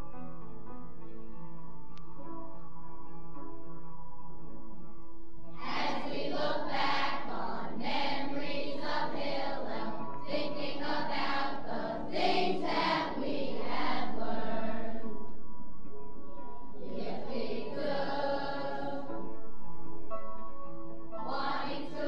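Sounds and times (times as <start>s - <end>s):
group singing in chorus: 5.6s - 15.2s, 16.8s - 19.2s, 21.2s - 22.0s.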